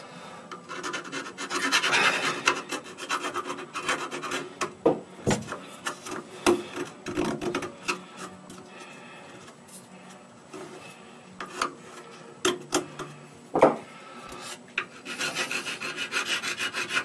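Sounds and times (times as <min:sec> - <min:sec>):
file rasping on plastic pipe: 0:00.6 - 0:04.8, 0:14.4 - 0:17.0.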